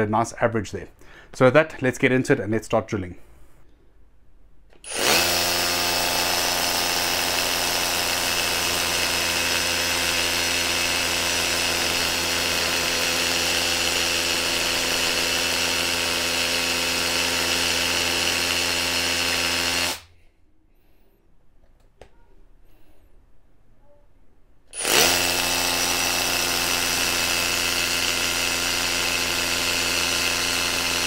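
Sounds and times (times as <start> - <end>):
hammer drill drilling into concrete: 4.8 - 20.1, 24.7 - 31.0.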